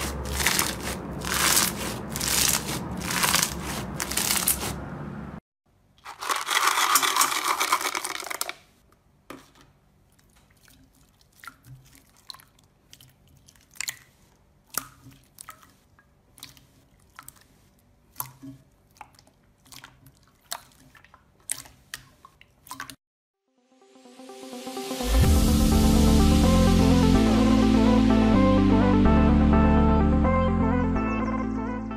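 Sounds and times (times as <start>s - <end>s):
foam pieces crackling: 0.0s - 4.8s.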